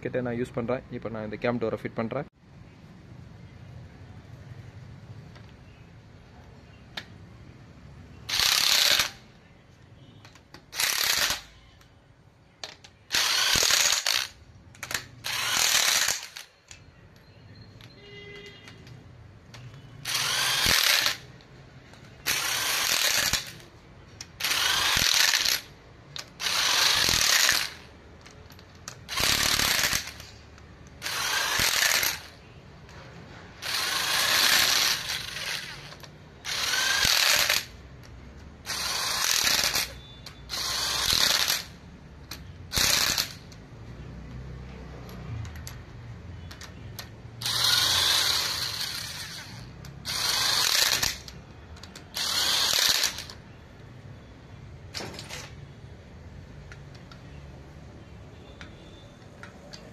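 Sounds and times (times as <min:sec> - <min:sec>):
power driver running in bolts: 0:24.4 - 0:30.3, 0:31.0 - 0:32.4, 0:33.6 - 0:37.7, 0:46.5 - 0:53.3.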